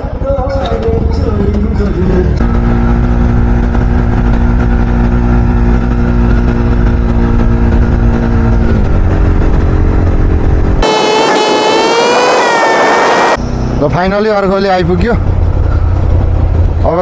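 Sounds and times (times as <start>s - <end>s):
vehicle engine rumbling: 0.0s - 17.0s.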